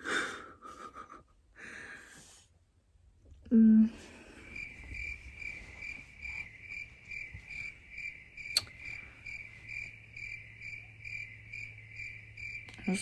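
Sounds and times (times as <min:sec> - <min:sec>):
cricket chirping: 0:04.1 - 0:13.0
sharp click: 0:08.5 - 0:08.8.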